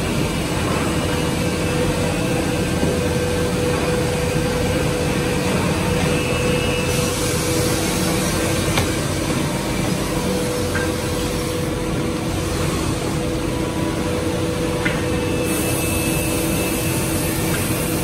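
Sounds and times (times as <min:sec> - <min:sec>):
machinery humming: 0:00.0 - 0:18.0
dust extraction air rushing: 0:04.3 - 0:10.6.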